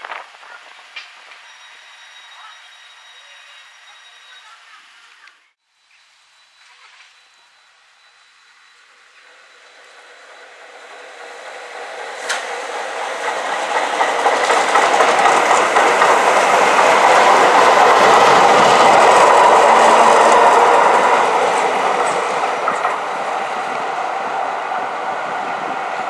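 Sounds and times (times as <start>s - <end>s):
electric train passing: 0.0s - 5.0s, 6.4s - 26.0s
train wheels clattering: 9.2s - 25.9s.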